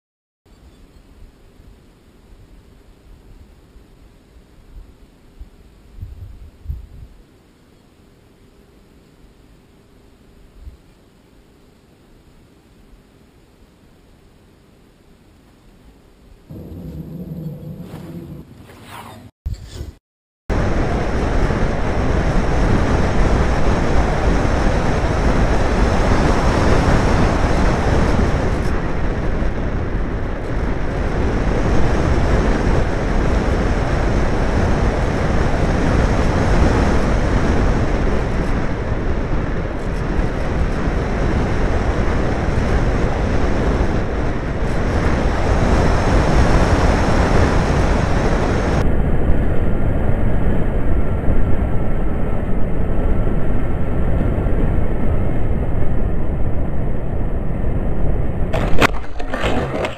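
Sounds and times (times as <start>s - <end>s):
wind rushing: 16.5s - 19.2s.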